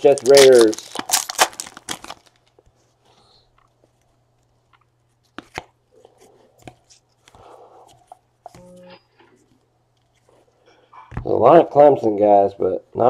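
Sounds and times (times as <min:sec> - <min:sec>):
trading cards clicking and rustling: 0:00.0 - 0:02.6.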